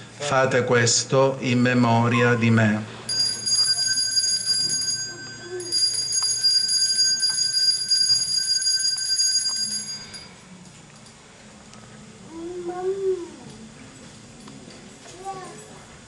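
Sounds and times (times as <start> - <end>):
altar bell ringing: 3.1 - 10.5.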